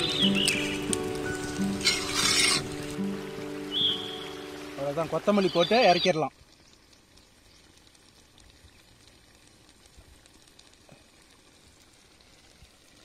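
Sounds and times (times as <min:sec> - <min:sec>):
curry bubbling in a pan: 0:06.4 - 0:13.0.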